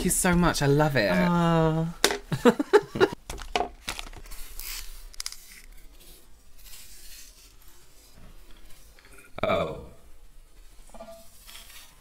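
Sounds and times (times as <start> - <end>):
gift wrapping rustling and crinkling: 3.2 - 9.0.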